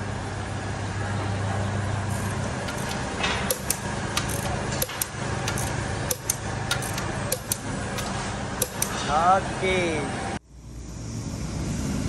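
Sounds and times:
workshop hum: 0:00.0 - 0:12.0
torque wrench clicking: 0:02.1 - 0:09.1.

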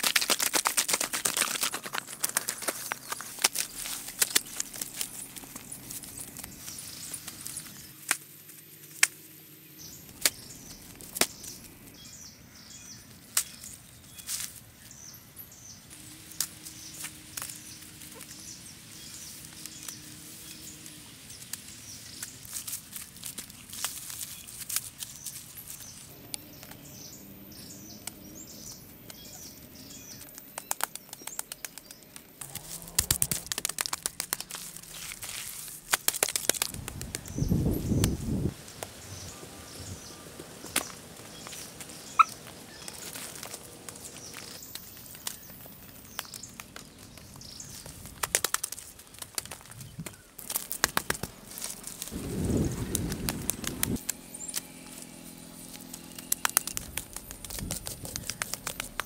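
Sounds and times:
wet slaps: 0:00.0 - 0:04.4
birds chirping: 0:01.0 - 0:35.8, 0:36.7 - 0:59.0.

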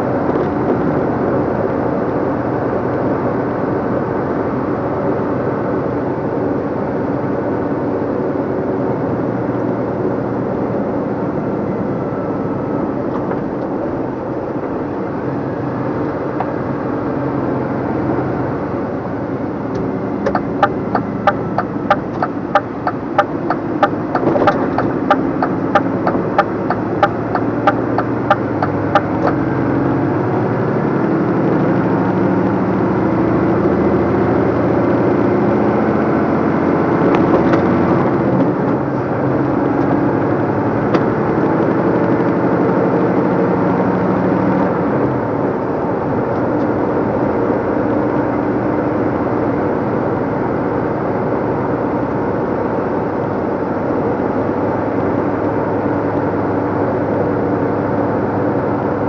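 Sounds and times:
lorry diesel engine running: 0:00.0 - 0:59.0
direction indicator ticking: 0:20.2 - 0:29.4.

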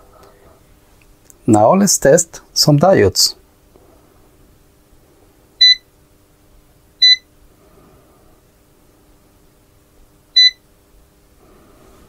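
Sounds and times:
clamp meter key beeps: 0:05.6 - 0:05.8, 0:07.0 - 0:07.2, 0:10.4 - 0:10.6.

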